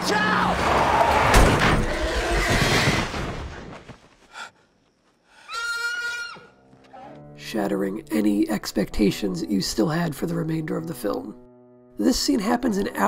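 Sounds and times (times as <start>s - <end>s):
loud vehicle crash: 0.0s - 3.7s
horse whinny: 5.5s - 7.1s.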